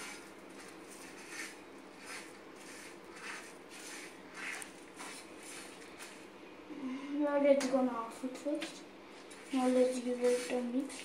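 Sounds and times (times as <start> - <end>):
spices scraping on a pan: 0.0 - 6.2, 9.4 - 11.0.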